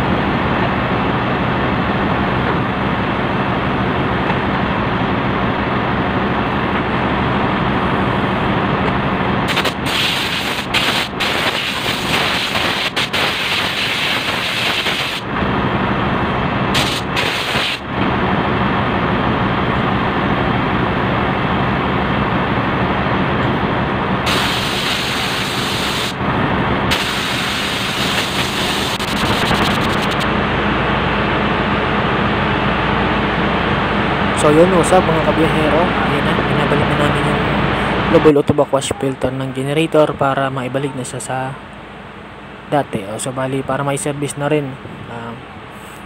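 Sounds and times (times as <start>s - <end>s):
engine room machinery drone: 0.0s - 46.0s
compressed air hose hissing: 9.5s - 15.2s, 16.7s - 17.8s, 24.3s - 26.2s, 26.9s - 30.2s.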